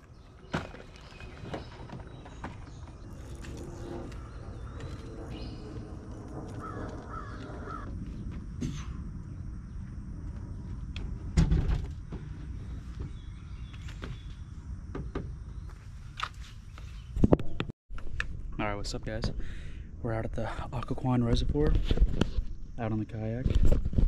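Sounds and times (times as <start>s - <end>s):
bird calling: 0.0s - 7.9s.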